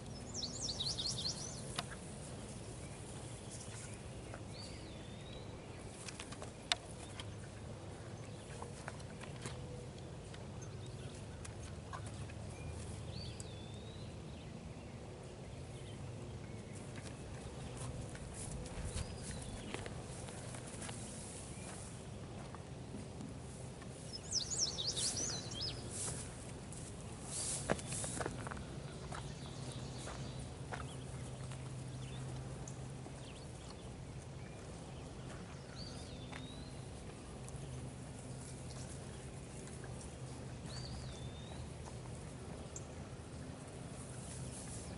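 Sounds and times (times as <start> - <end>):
bird chirping: 0.0 - 1.9, 24.1 - 26.1
horse hooves shuffling on dirt: 0.0 - 14.5, 15.5 - 44.9.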